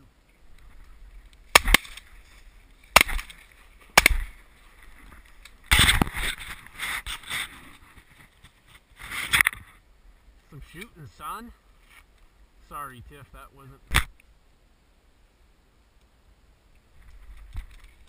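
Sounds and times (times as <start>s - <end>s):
shotgun blasts: 3.0s - 3.3s.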